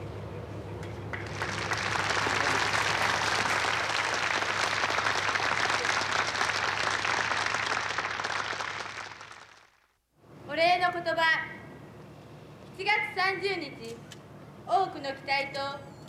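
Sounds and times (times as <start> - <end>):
crowd applauding: 1.1 - 9.9.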